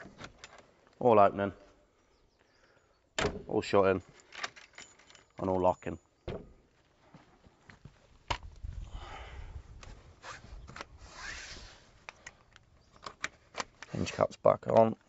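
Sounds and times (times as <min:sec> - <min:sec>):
rustling and scraping handling: 0:09.8 - 0:15.0.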